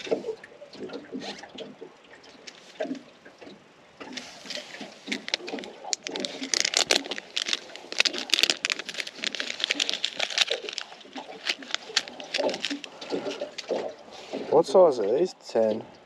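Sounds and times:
plastic packet crinkling: 4.8 - 13.7.

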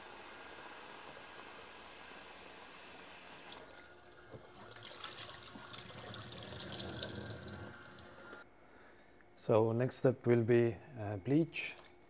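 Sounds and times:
tap water running into tank: 3.4 - 8.4
water splashing into steel sink: 3.5 - 8.1.

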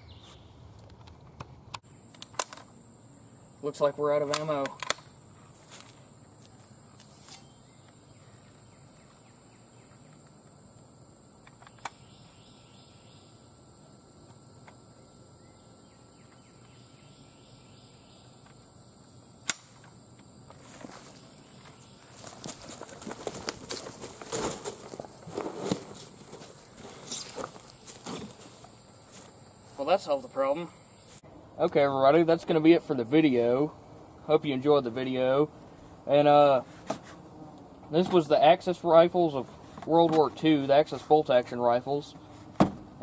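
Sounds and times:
insects droning: 0.0 - 43.0
running footsteps on dry leaves: 21.8 - 29.2.

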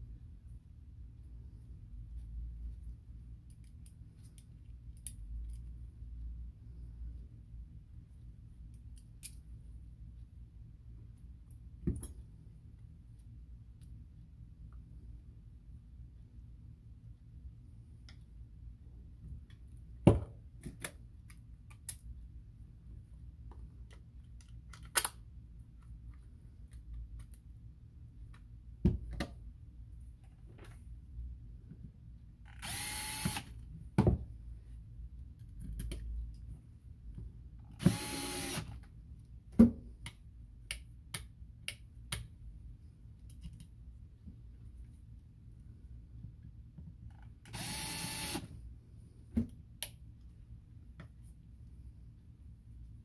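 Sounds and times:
drill whirring: 32.6 - 33.5, 37.8 - 38.8, 47.5 - 48.5.

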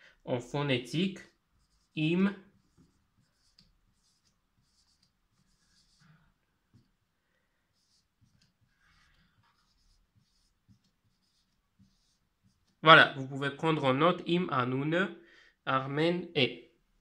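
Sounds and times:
marker scratching on whiteboard: 1.0 - 7.0, 7.7 - 13.4.

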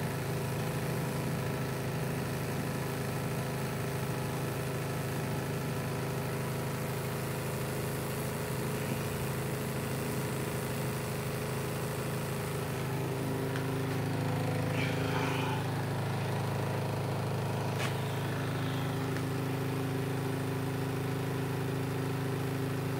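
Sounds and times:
electrical buzz: 12.0 - 21.3.

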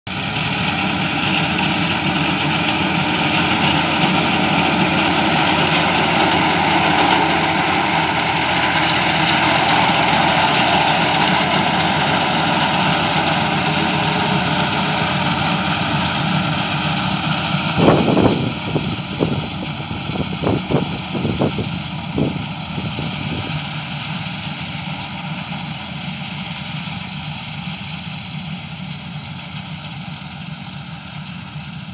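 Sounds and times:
tractor diesel engine under load: 0.0 - 31.9
reaper cutting stalks: 0.2 - 21.6.

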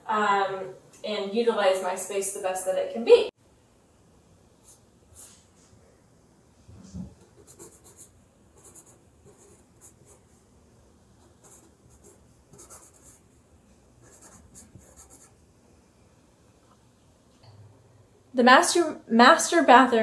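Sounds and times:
marker scratching on cardboard: 7.2 - 10.2, 11.2 - 13.2, 14.0 - 15.4.

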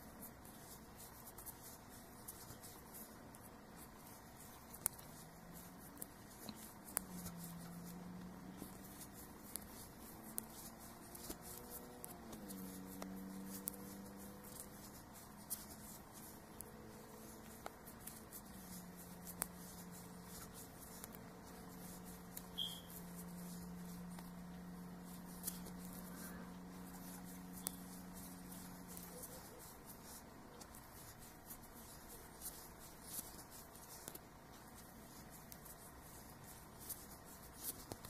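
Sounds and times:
crochet hook clicking and rubbing: 0.0 - 38.0
low steady hum: 0.0 - 38.0.

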